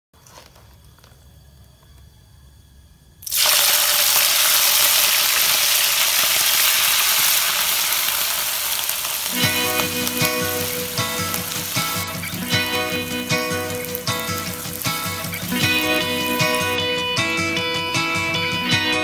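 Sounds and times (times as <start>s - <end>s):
shrimp sizzling in hot oil: 3.2s - 16.9s
music: 9.2s - 19.0s.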